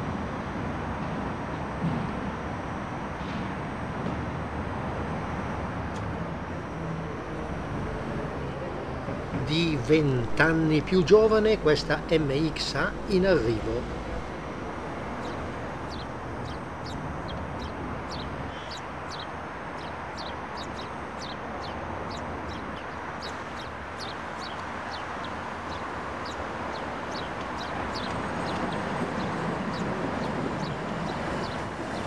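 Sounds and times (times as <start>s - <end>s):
city traffic hum: 0.0s - 32.0s
small birds chirping: 9.4s - 32.0s.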